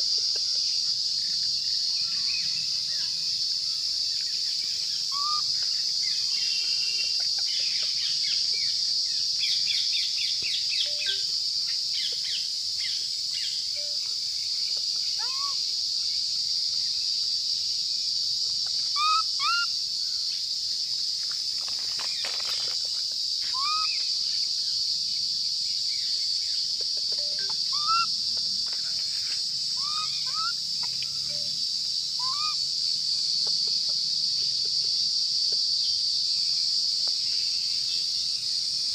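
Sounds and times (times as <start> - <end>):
insects droning: 0.0 - 38.9
rustle: 19.7 - 38.9.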